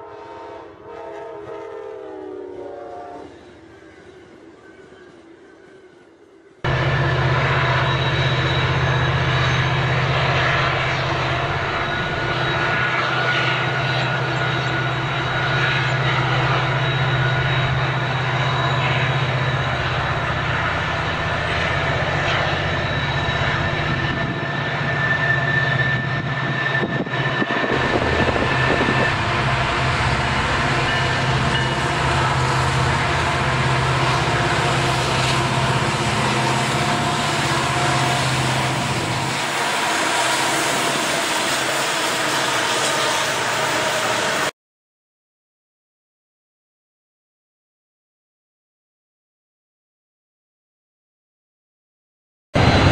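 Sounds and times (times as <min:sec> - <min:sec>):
diesel locomotives passing: 0:00.0 - 0:44.5, 0:52.6 - 0:52.9.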